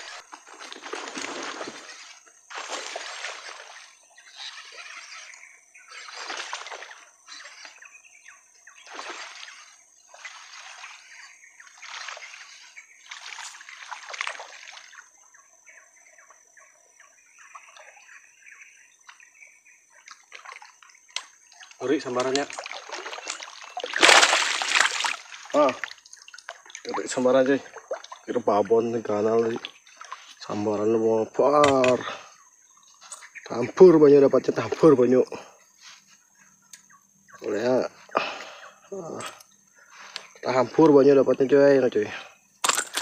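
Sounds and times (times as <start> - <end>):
water splashing and sloshing: 0.0 - 5.3, 5.9 - 7.8, 8.8 - 15.2, 20.0 - 30.6.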